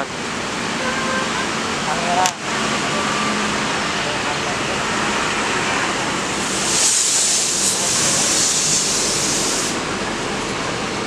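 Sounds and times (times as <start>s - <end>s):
bus engine running: 0.0s - 11.0s
loud hiss of compressed air: 6.3s - 9.9s.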